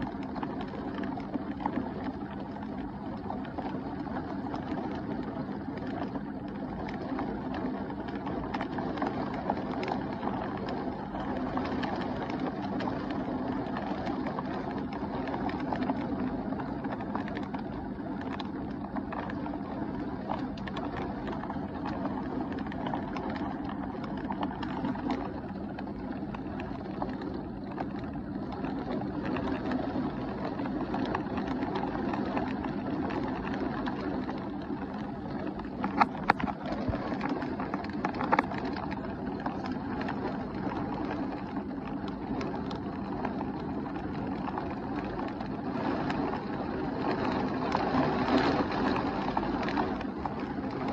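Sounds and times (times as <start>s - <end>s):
raindrops ticking close by: 0.0s - 50.9s
heavy rain pouring: 5.8s - 17.6s, 26.0s - 50.9s.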